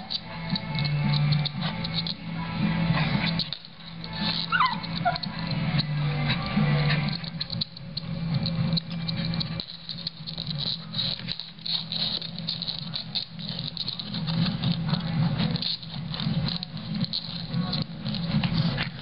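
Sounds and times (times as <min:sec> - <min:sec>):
dog claws scratching wooden floor: 0:00.0 - 0:19.0
light rattling: 0:00.0 - 0:19.0.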